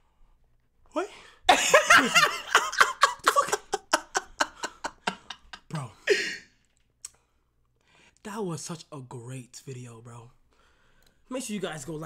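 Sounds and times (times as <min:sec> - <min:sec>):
man laughing hard: 0:01.5 - 0:06.4.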